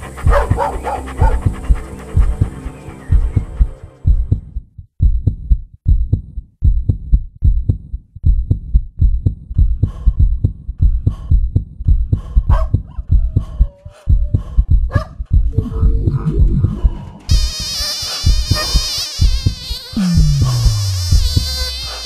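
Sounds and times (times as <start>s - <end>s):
heartbeat thumps: 0.0s - 21.9s
higher hiss: 15.6s - 22.0s.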